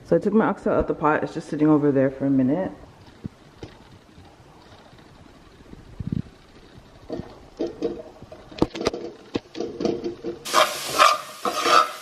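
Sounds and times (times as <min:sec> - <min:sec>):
vegetables sizzling in oil: 0:10.4 - 0:12.0.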